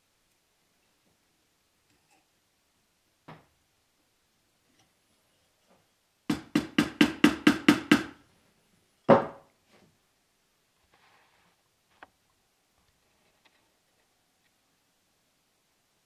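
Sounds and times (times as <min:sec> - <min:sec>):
hammer tapping wood: 0:06.3 - 0:08.2.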